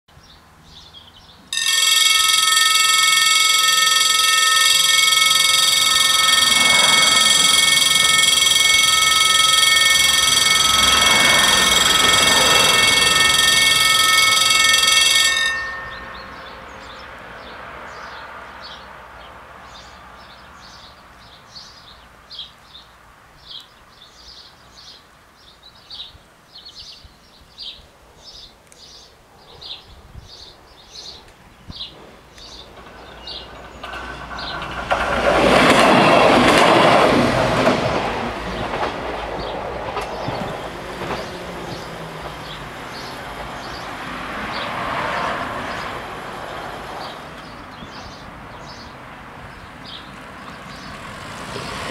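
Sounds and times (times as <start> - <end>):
birds chirping: 0.1 - 51.0
electronic warning bells ringing: 1.5 - 17.1, 32.8 - 48.8
rushing noise: 1.6 - 17.8.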